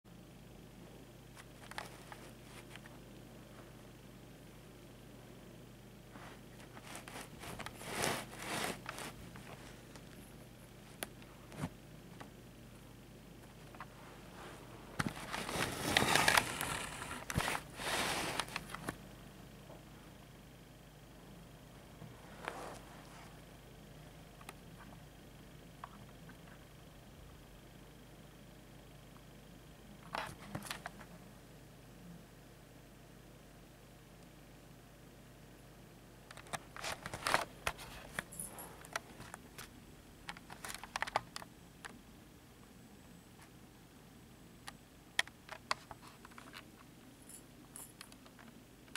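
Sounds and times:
kitten rustling on carpet: 6.1 - 10.1, 13.8 - 18.8.

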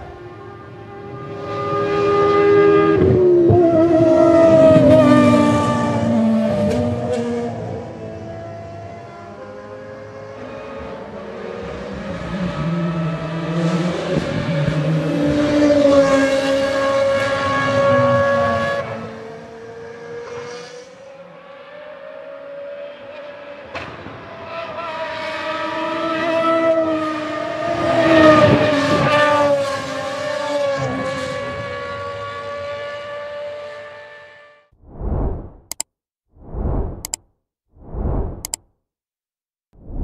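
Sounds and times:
racing car engine at high revs: 0.0 - 34.3
sharp click: 35.6 - 35.9, 36.8 - 37.2, 38.2 - 38.6.

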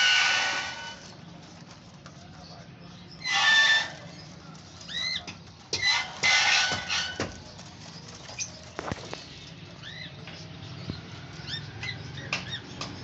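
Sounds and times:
lovebirds screeching chatter: 0.0 - 13.0.

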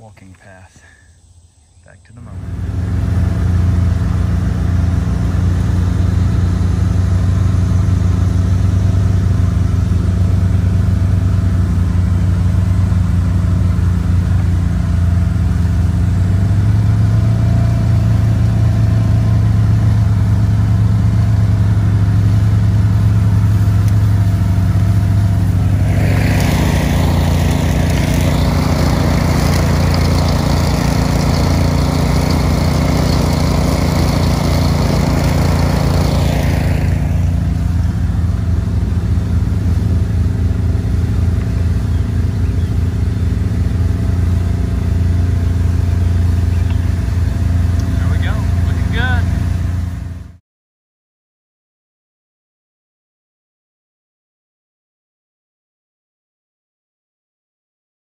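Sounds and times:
pickup truck engine droning: 2.0 - 50.4
loud rushing noise: 25.2 - 31.3.

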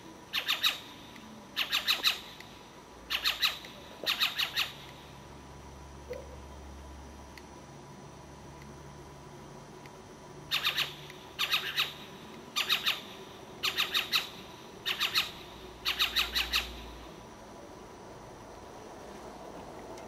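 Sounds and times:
owl squawking: 0.3 - 0.9, 1.6 - 2.4, 3.1 - 4.9, 10.5 - 16.9.

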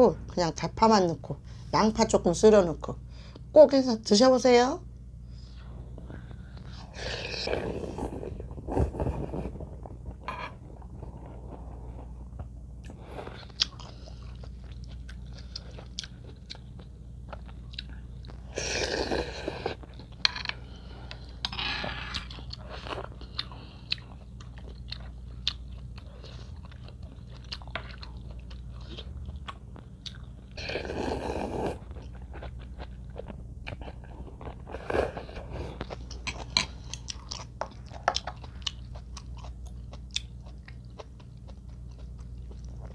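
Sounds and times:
chewing and crunching food: 6.1 - 42.9
slurping soup from spoon: 7.0 - 9.7, 30.6 - 31.9, 34.7 - 35.8.

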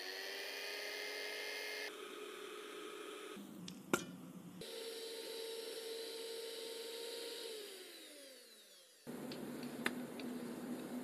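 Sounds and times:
electric hand mixer motor: 0.0 - 3.4, 4.6 - 9.2.

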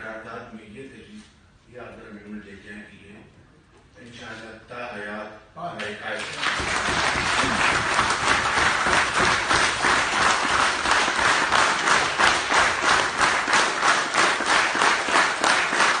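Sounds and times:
audience clapping in rhythm: 6.0 - 16.0.

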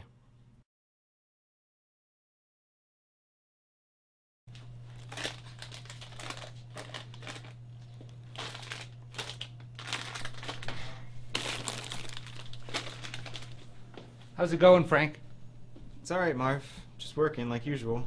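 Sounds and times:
plastic bags crinkling: 4.5 - 14.0
steady low hum: 4.5 - 18.0.

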